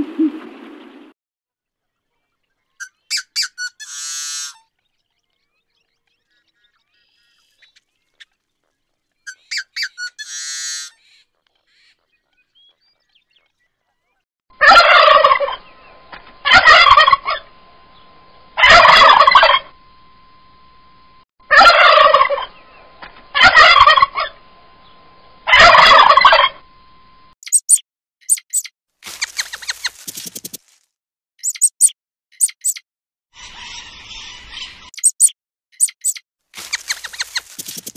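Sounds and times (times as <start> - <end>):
small bird chirping: 1.8 - 14.2, 27.4 - 30.7, 31.4 - 32.8, 33.4 - 37.9
turkeys gobbling: 2.8 - 4.6, 6.3 - 13.5, 14.6 - 15.7, 16.4 - 17.5, 18.6 - 19.7, 21.5 - 22.6, 23.3 - 24.4, 25.5 - 26.6
bird rattly trill: 9.3 - 11.2, 27.4 - 30.7, 31.4 - 32.8, 33.4 - 37.9.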